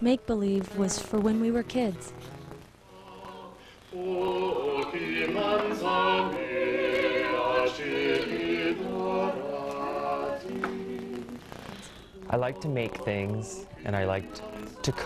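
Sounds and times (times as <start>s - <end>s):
choir singing held notes: 0.7s - 15.0s.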